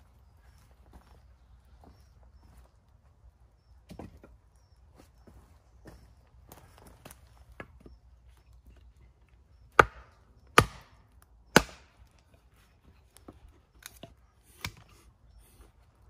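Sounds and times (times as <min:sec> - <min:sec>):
axe chopping wood: 0:09.7 - 0:12.1
light knocks of splitting wood: 0:09.7 - 0:12.4.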